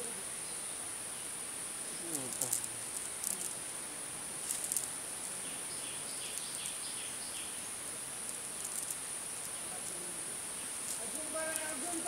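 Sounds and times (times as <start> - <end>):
brief crackles: 2.1 - 3.6.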